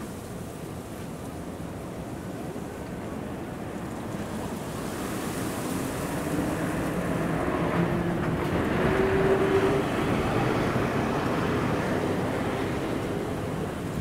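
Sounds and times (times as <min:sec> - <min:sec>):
bus driving past: 0:06.2 - 0:14.0.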